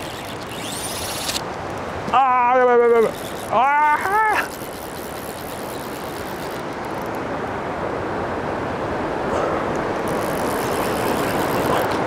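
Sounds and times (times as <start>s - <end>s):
river water flowing over stones: 0.0s - 12.0s.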